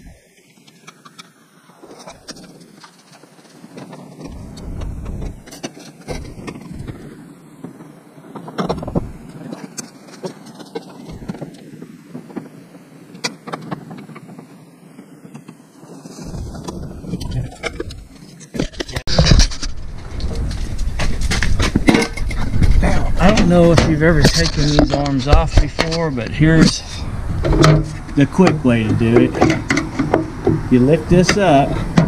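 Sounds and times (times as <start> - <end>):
low rumble: 16.2 - 18.1, 19.0 - 29.5
metal clicks and knocks: 29.2 - 30.7.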